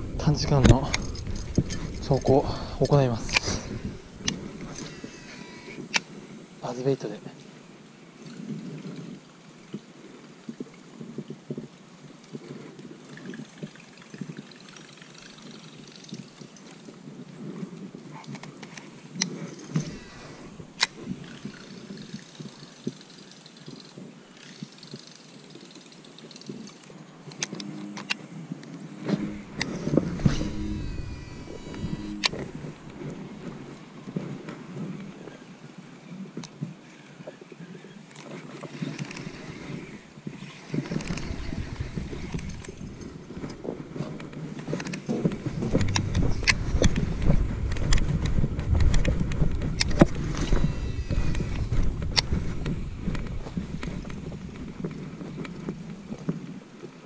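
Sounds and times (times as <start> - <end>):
rustling rumble: 0.0 - 6.6, 38.9 - 56.6
reel spool whirring: 0.0 - 7.1, 13.3 - 17.0, 18.7 - 35.2, 37.7 - 56.9
fishing reel clicks: 0.2 - 6.2, 14.7 - 16.8, 18.7 - 28.2, 29.0 - 33.8, 38.1 - 54.2
camera handling and rubbing noise: 0.4 - 6.3, 17.8 - 23.0, 26.4 - 35.2, 40.7 - 56.6.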